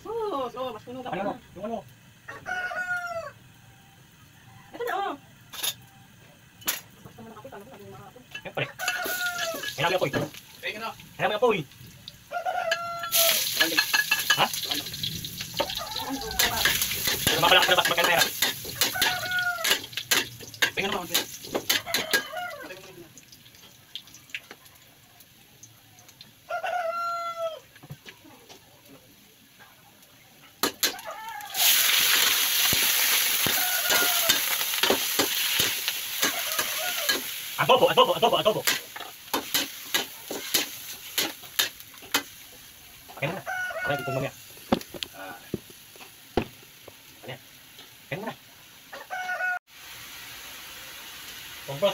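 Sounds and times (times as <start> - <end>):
rooster crowing: 2.2 - 5.2, 8.6 - 9.8, 12.3 - 13.6, 15.5 - 20.0, 21.7 - 23.0, 26.4 - 27.7, 30.8 - 32.1, 33.2 - 35.0, 36.2 - 37.4, 43.1 - 44.4, 48.9 - 49.6
meat sizzling: 6.6 - 51.9
metal spatula scraping in wok: 16.3 - 22.3, 38.6 - 42.3.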